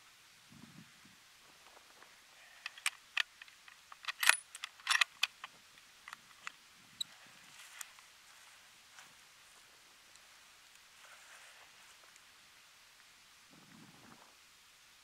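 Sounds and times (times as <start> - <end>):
metallic clicks and clinks: 2.6 - 5.5.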